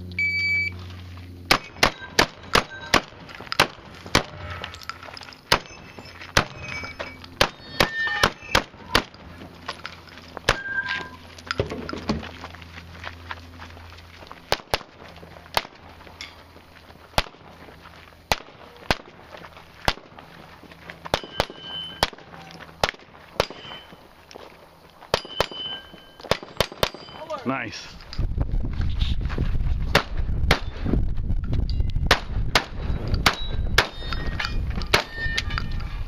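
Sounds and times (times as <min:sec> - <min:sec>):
gunshots: 0:01.5 - 0:04.7, 0:05.5 - 0:05.8, 0:07.4 - 0:09.2, 0:17.2 - 0:17.5, 0:18.3 - 0:19.2, 0:19.9 - 0:20.2, 0:21.1 - 0:24.0, 0:26.2 - 0:27.2, 0:32.1 - 0:34.1
steel targets ringing: 0:01.5 - 0:11.7, 0:21.1 - 0:22.4, 0:23.4 - 0:24.2, 0:25.1 - 0:27.8, 0:32.7 - 0:36.0.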